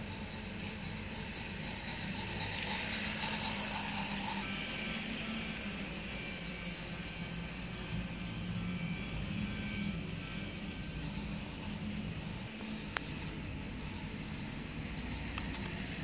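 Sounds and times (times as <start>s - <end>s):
toy train wheel rattle: 0.0s - 5.6s
toy train motor whir: 0.0s - 16.0s.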